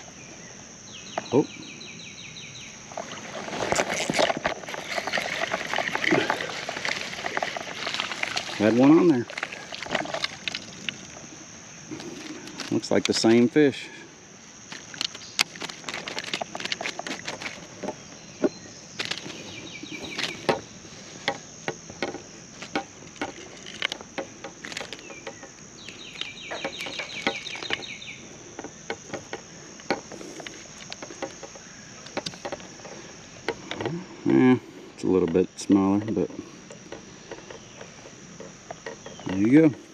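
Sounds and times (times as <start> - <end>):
high insect drone: 0.0 - 39.9
hands handling fish in net: 2.9 - 13.3, 14.7 - 27.9.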